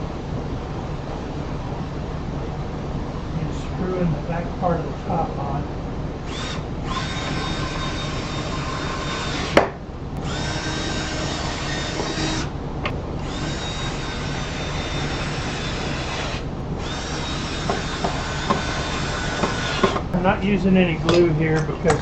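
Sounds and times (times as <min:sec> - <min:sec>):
cordless drill motor whine: 0:06.2 - 0:12.5, 0:13.2 - 0:20.1.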